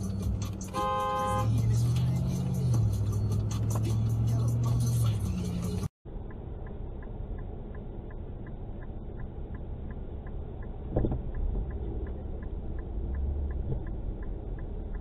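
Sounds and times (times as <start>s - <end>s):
car engine idling: 0.0s - 15.0s
turn-signal relay ticking: 6.2s - 15.0s.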